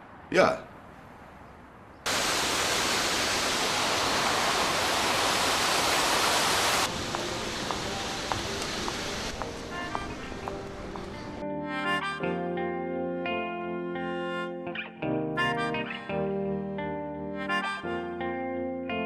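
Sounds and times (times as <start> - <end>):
indoor fountain splashing: 2.1 - 11.4
faint footstep clicks: 6.9 - 11.4.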